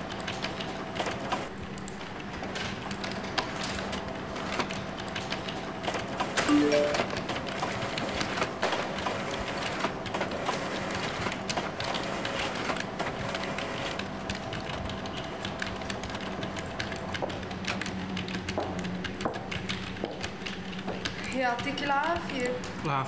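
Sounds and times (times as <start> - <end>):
keyboard typing: 4.7 - 8.3, 14.3 - 22.5.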